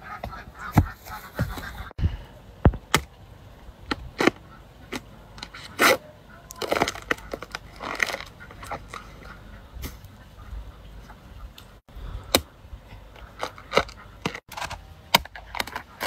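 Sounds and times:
hoe chopping bamboo and soil: 0:02.6 - 0:03.2, 0:03.8 - 0:09.0, 0:12.1 - 0:16.0.

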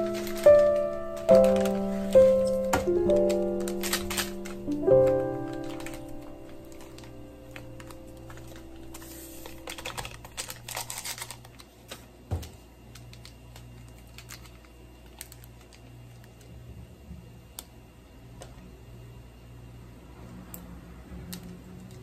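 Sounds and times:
plastic sachets crinkling and tearing: 0:00.0 - 0:16.6
steady low hum: 0:00.0 - 0:22.0.

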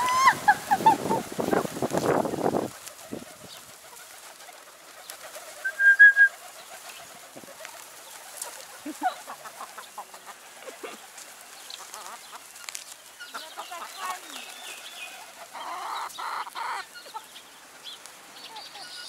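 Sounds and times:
pigeons cooing: 0:00.0 - 0:17.4
wing flaps and scuffles: 0:00.6 - 0:05.6.

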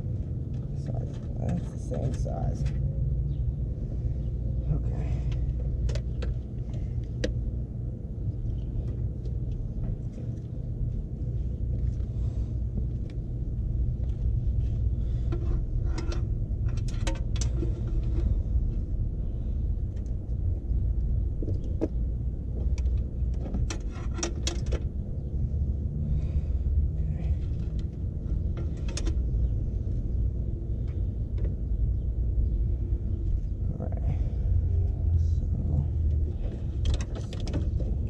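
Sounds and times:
steady low rumble: 0:00.0 - 0:38.0
clicks of handling car parts: 0:22.6 - 0:24.9.

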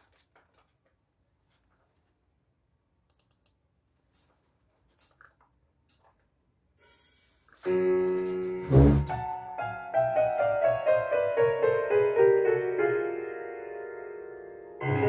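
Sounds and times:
instrument keys clicking: 0:03.1 - 0:06.2.

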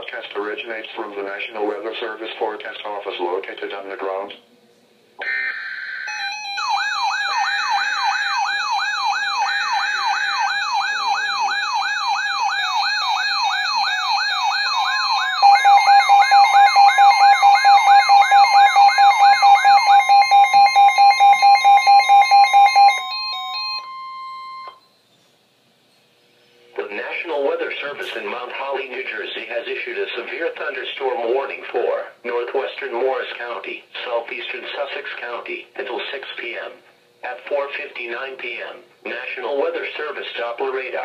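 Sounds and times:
warbling siren sweep: 0:05.2 - 0:23.9
digital alert header bursts: 0:05.2 - 0:24.8
steady warning tone: 0:05.2 - 0:25.0
high beeps: 0:14.7 - 0:24.8.

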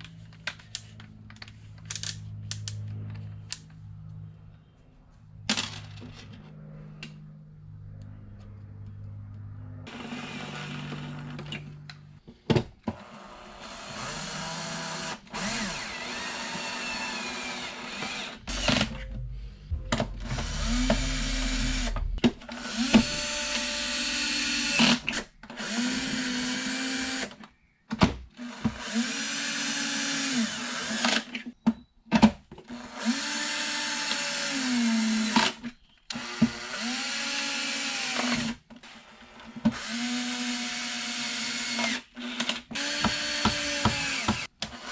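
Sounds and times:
cordless drill driving screws: 0:13.0 - 0:19.0, 0:28.4 - 0:31.4, 0:39.7 - 0:44.9.

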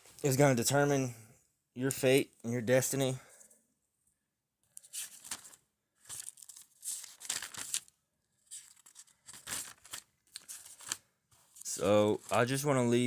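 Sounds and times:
rustling and crinkling: 0:04.8 - 0:12.7.

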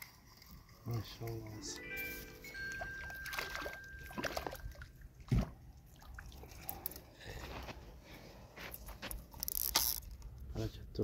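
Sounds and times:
small water sounds: 0:00.0 - 0:08.1.

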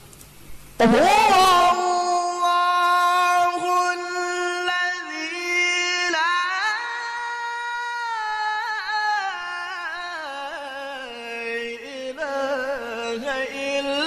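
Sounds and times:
man chanting melodically: 0:00.8 - 0:14.0.

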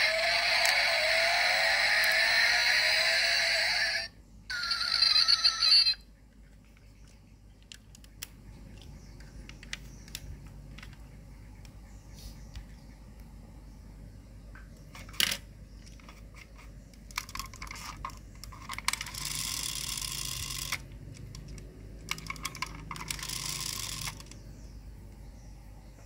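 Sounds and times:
small clicks: 0:16.9 - 0:24.5.

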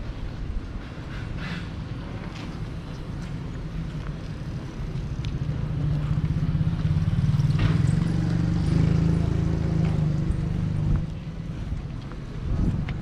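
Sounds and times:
vehicle engine passing by: 0:05.3 - 0:11.7.

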